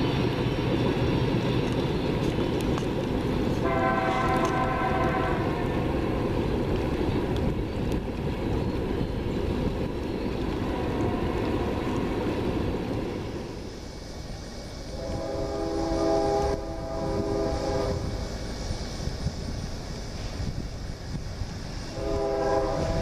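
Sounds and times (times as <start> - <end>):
freight train rumbling by: 0.0 - 23.0
locomotive horn: 3.6 - 5.8, 10.6 - 12.1, 14.9 - 18.1, 21.9 - 23.0.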